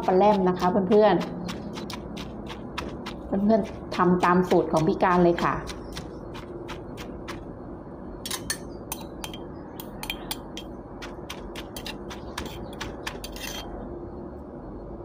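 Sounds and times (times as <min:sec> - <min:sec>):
metal spoon scraping mortar: 0:00.0 - 0:07.4, 0:11.3 - 0:13.8
stone pestle pounding in mortar: 0:00.0 - 0:07.5.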